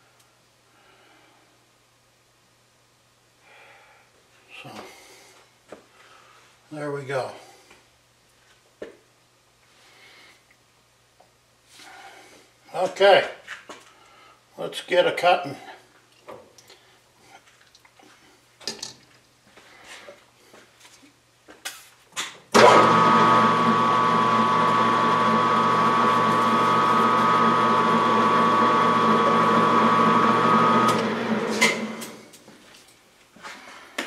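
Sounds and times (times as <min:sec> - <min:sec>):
metal lathe whining: 0:22.6 - 0:32.2.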